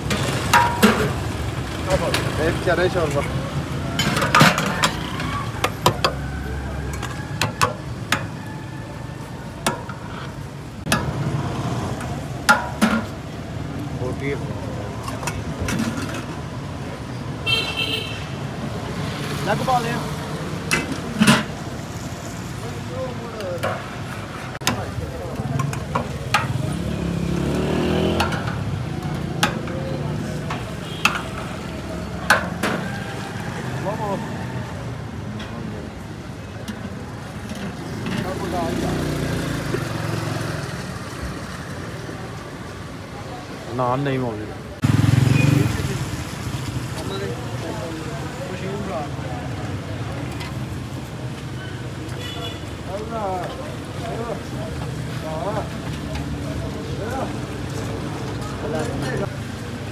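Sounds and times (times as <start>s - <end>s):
street noise: 0.0s - 59.9s
vehicle engine passing: 26.4s - 30.5s, 44.8s - 47.0s.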